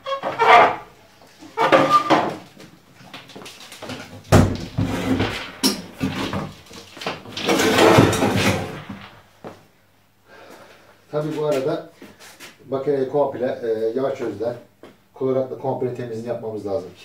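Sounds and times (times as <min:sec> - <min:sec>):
cabinet knocking and scraping: 0:01.6 - 0:02.5, 0:03.9 - 0:09.3
heavy thump: 0:04.3 - 0:09.6.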